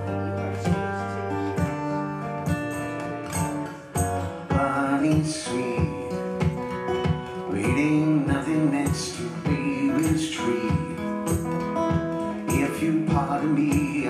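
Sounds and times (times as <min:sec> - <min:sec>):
acoustic guitar: 0:00.0 - 0:14.0
man singing: 0:03.9 - 0:14.0.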